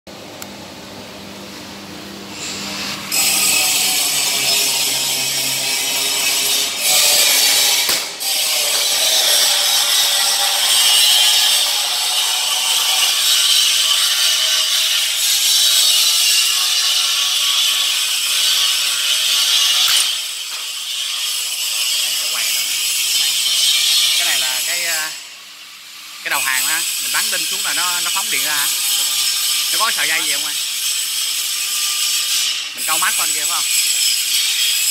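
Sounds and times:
power tool grinding: 2.3s - 25.2s, 26.3s - 34.9s
sharp cracks: 7.6s - 9.7s.

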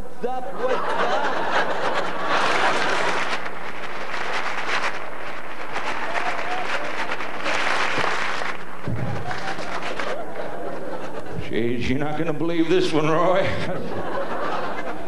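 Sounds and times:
audience applauding: 0.8s - 11.4s.

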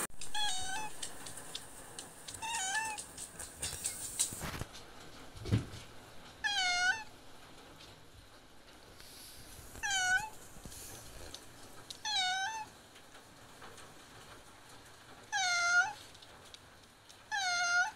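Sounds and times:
cat meowing loudly: 0.2s - 1.0s, 2.4s - 3.0s, 6.4s - 7.1s, 9.8s - 10.4s, 12.0s - 12.7s, 15.3s - 16.0s, 17.3s - 17.9s.

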